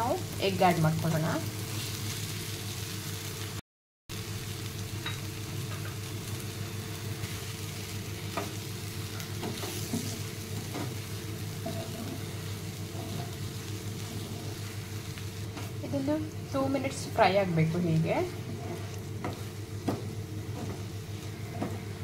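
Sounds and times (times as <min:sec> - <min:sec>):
masala sizzling in a frying pan: 0:00.0 - 0:22.0
spatula tapping and scraping: 0:08.3 - 0:11.0, 0:11.6 - 0:13.5, 0:18.2 - 0:22.0.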